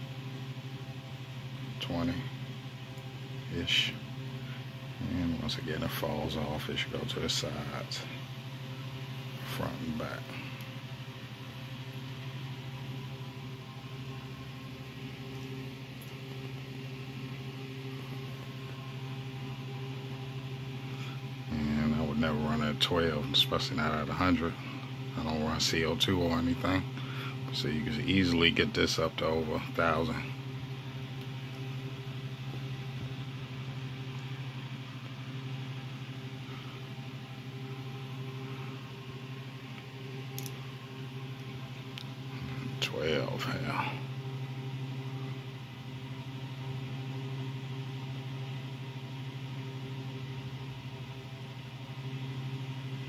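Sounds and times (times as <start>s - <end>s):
fans humming: 0.0s - 53.0s
faint click: 40.4s - 40.6s.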